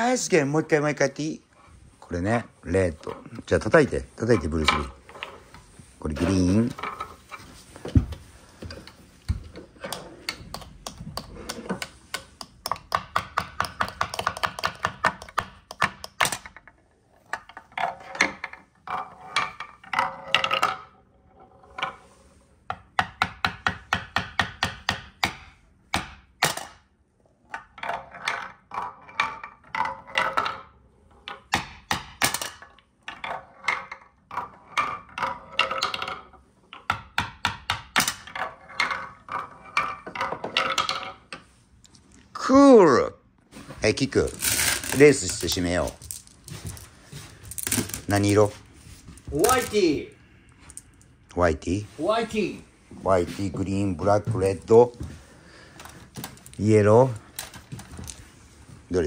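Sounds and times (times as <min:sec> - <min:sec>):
wooden balls clattering down ramps: 0:02.0 - 0:41.5, 0:43.8 - 0:51.1, 0:53.4 - 0:58.3
wooden mallet knocking balls: 0:02.3 - 0:41.6, 0:44.1 - 0:48.6, 0:49.2 - 0:51.1.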